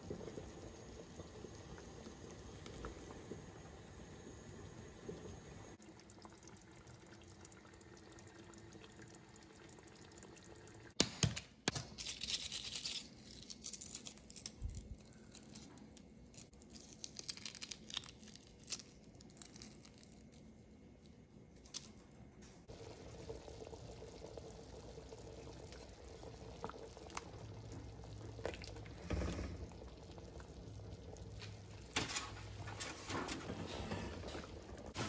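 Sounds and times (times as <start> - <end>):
pot simmering: 0.0 - 11.0, 22.6 - 35.0
egg shells crackling as peeled: 11.0 - 22.2.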